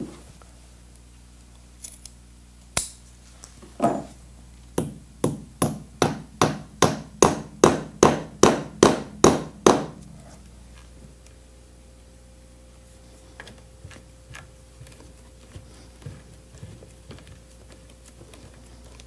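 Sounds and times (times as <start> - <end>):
hammer striking nails into wood: 4.8 - 10.0.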